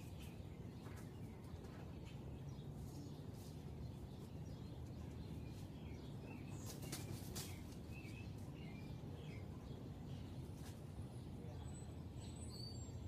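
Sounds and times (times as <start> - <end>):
faint bird chirps: 0.0 - 13.0.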